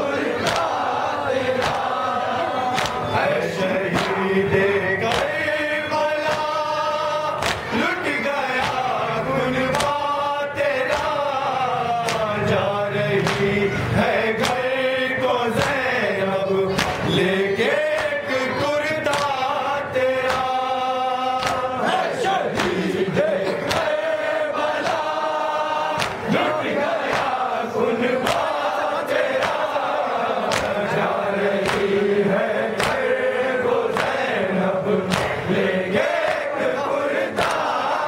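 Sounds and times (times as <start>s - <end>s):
men chanting a lament in unison: 0.0s - 38.0s
chest-beating slaps: 0.4s - 0.8s, 1.6s - 2.0s, 2.7s - 3.2s, 3.9s - 4.3s, 5.1s - 5.5s, 6.2s - 6.6s, 7.3s - 7.8s, 8.5s - 9.0s, 9.7s - 10.0s, 10.8s - 11.2s, 12.0s - 12.4s, 13.2s - 13.7s, 14.4s - 14.7s, 16.7s - 17.1s, 19.0s - 19.4s, 20.2s - 20.6s, 21.3s - 21.8s, 22.5s - 23.0s, 25.9s - 26.4s, 27.0s - 27.4s, 28.2s - 28.7s, 29.3s - 29.8s, 30.4s - 32.0s, 32.7s - 33.1s, 35.0s - 35.5s, 37.3s - 37.8s.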